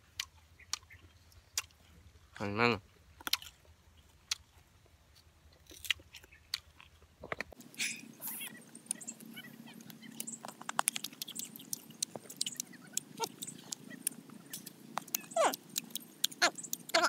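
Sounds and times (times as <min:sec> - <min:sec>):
person chewing crunchy food: 0:00.1 - 0:01.9, 0:03.2 - 0:17.0
lip smacks: 0:09.9 - 0:17.0
wet mouth clicks: 0:10.1 - 0:17.0.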